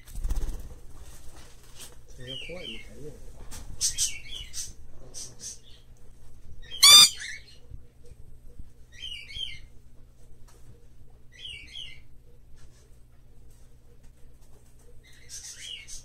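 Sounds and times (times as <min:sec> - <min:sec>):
parrot chirping: 0:06.7 - 0:07.3
parrot squawking: 0:06.8 - 0:07.4.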